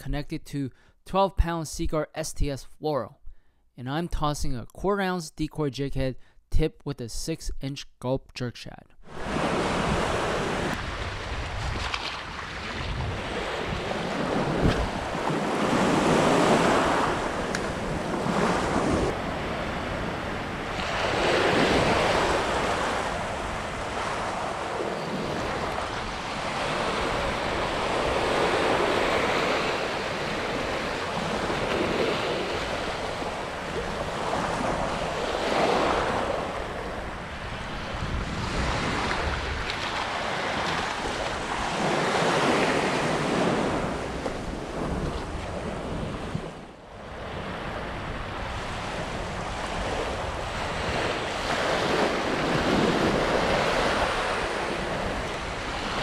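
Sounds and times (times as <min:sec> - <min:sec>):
surf breaking on sand and rocks: 0:09.0 - 0:56.0
wind buffeting microphone: 0:09.2 - 0:28.5, 0:37.1 - 0:41.8.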